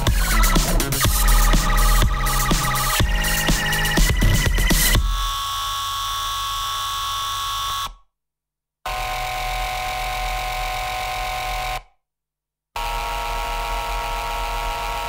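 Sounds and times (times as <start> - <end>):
electronic drone of held tones: 0.0 - 5.9.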